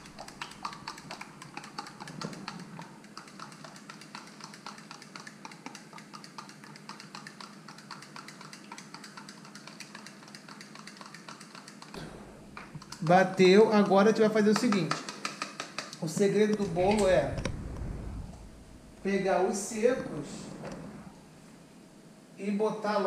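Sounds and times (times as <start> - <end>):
utensil beating liquid in cup: 0.0 - 12.0.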